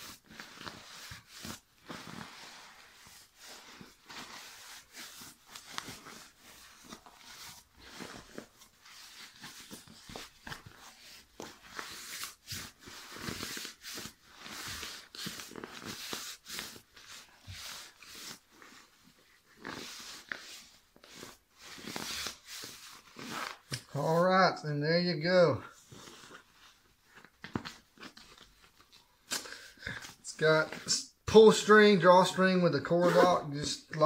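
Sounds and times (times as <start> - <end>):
sleeping bag rustling and crinkling: 0.0 - 24.1.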